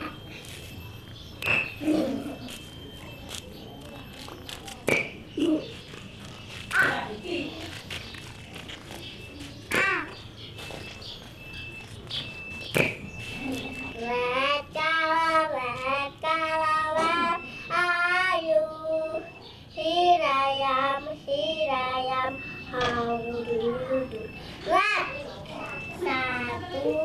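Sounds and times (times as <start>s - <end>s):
child singing: 14.0s - 27.0s.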